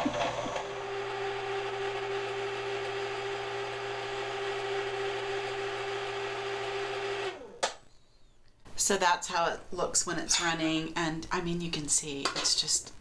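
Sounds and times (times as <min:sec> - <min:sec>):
ice cream maker motor humming: 0:00.0 - 0:07.7.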